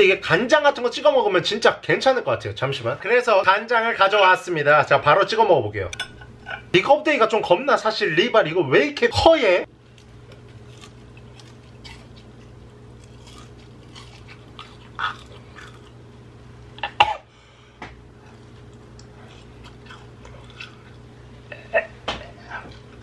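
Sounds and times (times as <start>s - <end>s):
steady low hum: 0.0s - 23.0s
person chewing: 9.8s - 16.1s, 18.1s - 23.0s.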